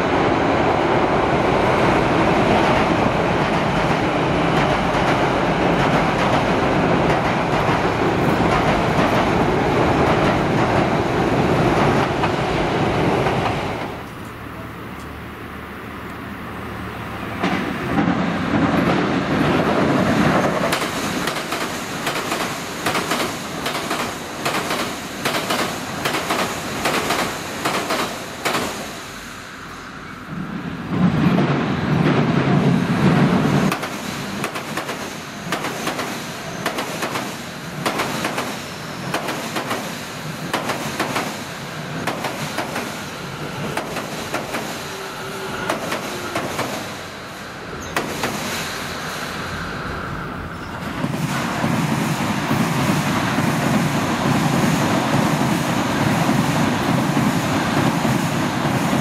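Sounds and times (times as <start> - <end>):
loud low bridge rumble: 0.0 - 35.6
train wheels clacking over rail joints: 3.8 - 10.9, 17.4 - 29.0, 31.0 - 47.0, 47.8 - 48.7.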